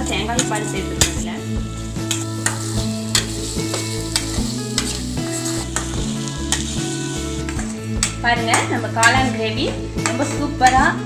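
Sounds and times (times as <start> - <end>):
background music: 0.0 - 11.0
frying sizzle: 1.8 - 7.7
spatula scraping a steel pan: 2.0 - 7.6.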